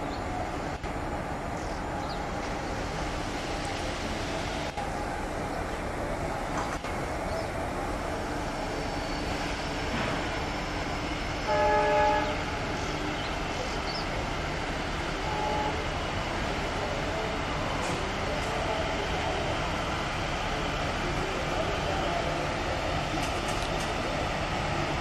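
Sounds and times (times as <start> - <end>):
train locomotive and wheels rumbling: 0.0 - 25.0
train horn: 11.4 - 12.7, 15.2 - 15.9.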